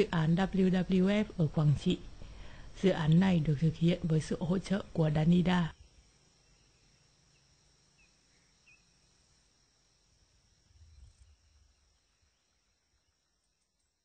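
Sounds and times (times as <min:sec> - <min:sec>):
faint high-pitched hum: 0:00.0 - 0:14.0
faint low rumble: 0:10.5 - 0:13.1.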